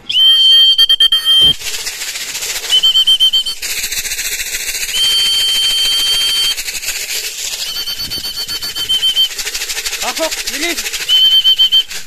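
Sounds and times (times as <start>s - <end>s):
person whistling a high call: 0.0s - 1.6s, 2.7s - 3.6s, 4.9s - 6.6s, 7.5s - 9.3s, 11.1s - 12.0s
seed rattling in plastic jar: 1.0s - 12.0s.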